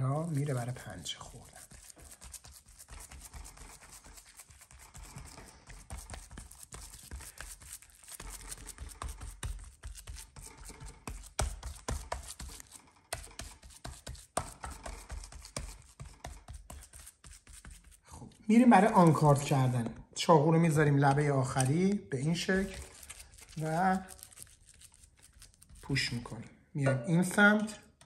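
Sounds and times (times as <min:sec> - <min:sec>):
fingers patting raw meat: 0:01.8 - 0:18.0.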